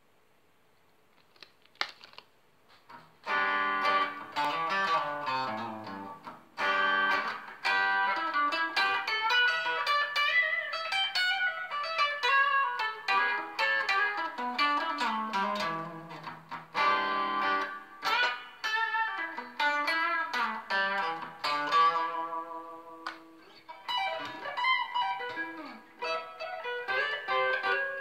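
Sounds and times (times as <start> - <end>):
picked guitar notes: 2.9 - 28.0
electric guitar chords strummed: 3.2 - 28.0.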